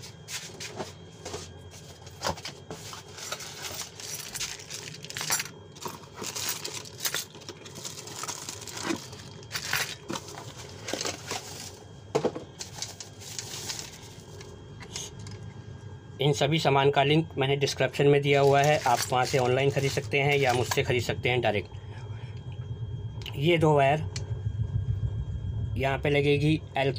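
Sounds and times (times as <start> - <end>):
plastic bag crinkling: 3.4 - 11.8, 12.6 - 14.4, 18.4 - 20.8
cardboard rustling: 5.9 - 11.8, 12.6 - 14.4.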